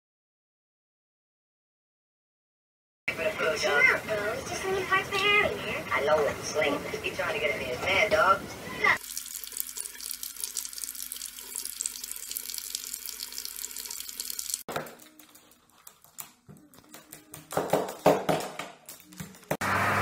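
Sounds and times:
faucet water splashing into basin: 0:09.0 - 0:14.7.

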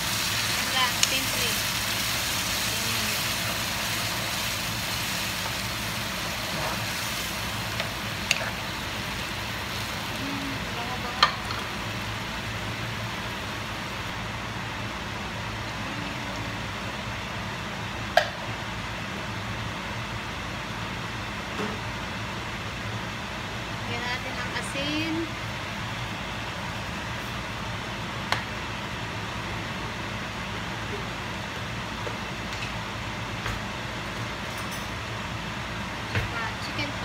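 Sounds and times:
liquid sizzling in a frying pan: 0:00.0 - 0:14.1.

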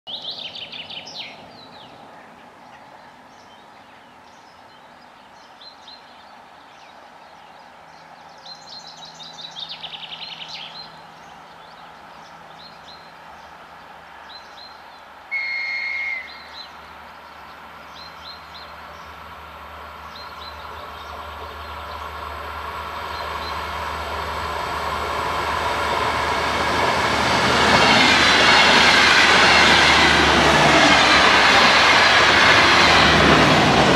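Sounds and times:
train horn blast: 0:15.3 - 0:16.6.

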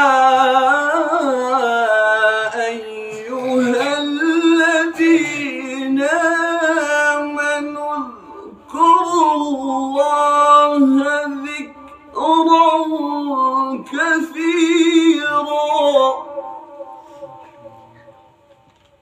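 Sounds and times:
man reciting melodically: 0:00.0 - 0:18.8.

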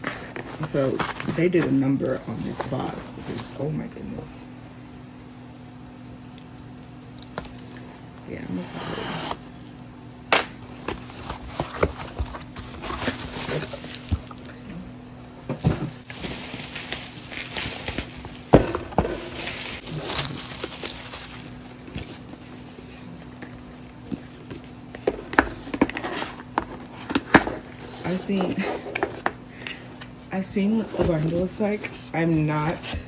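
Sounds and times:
cardboard rustling and scraping: 0:00.0 - 0:03.7, 0:10.8 - 0:14.7, 0:15.4 - 0:29.3, 0:30.0 - 0:33.0.

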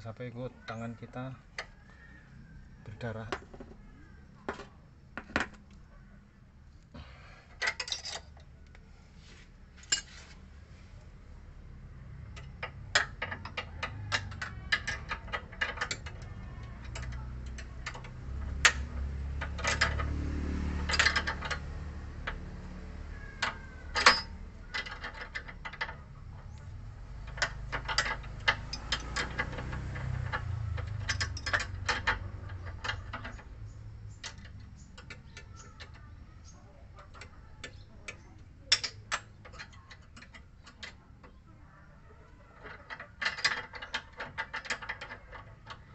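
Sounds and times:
metal tools clicking and clinking: 0:07.5 - 0:08.5, 0:09.8 - 0:10.1, 0:12.3 - 0:41.4, 0:42.3 - 0:45.9.

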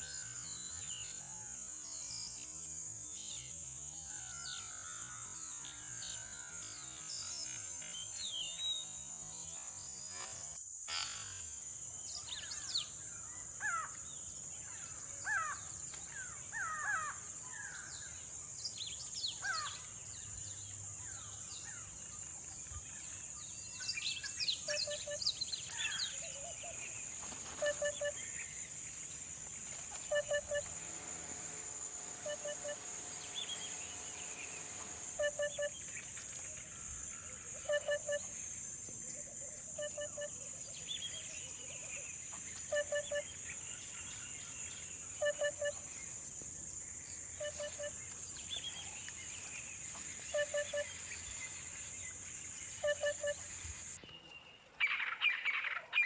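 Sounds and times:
birds chirping and calling: 0:12.1 - 0:54.0
high-pitched buzz: 0:29.6 - 0:36.0.

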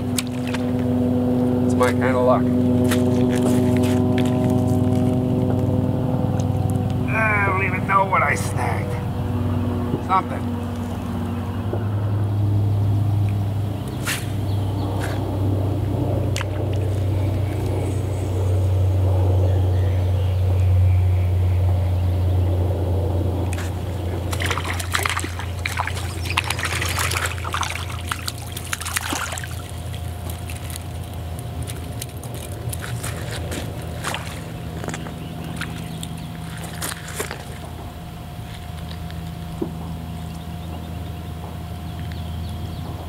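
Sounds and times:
water splashing and sloshing: 0:00.0 - 0:07.1, 0:13.0 - 0:18.1, 0:23.4 - 0:40.3
low engine drone: 0:00.0 - 0:43.0.

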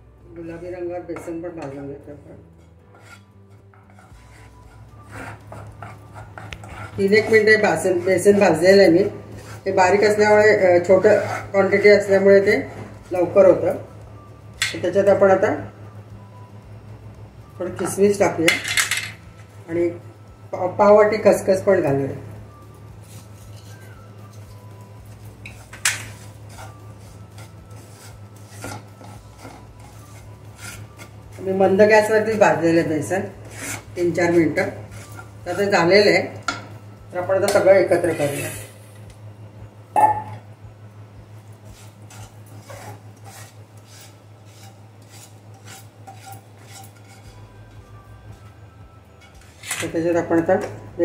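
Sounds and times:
steady low hum: 0:00.0 - 0:51.0
spatula scraping metal pan: 0:00.4 - 0:13.9, 0:23.0 - 0:24.5, 0:25.4 - 0:36.4, 0:37.5 - 0:38.8, 0:41.6 - 0:47.5, 0:49.2 - 0:50.0.

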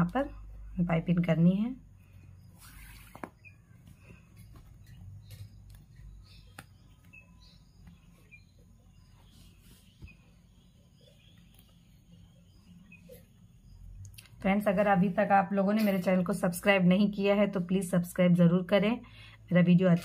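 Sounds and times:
cord rustling: 0:02.1 - 0:10.4.

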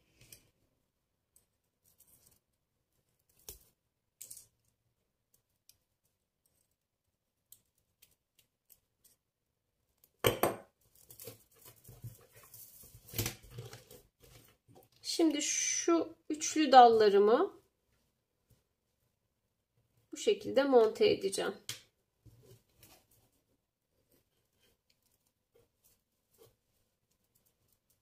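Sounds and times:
rustling of beaded piece: 0:01.3 - 0:15.0, 0:22.3 - 0:28.0
beads and wire clicking: 0:07.4 - 0:09.2.

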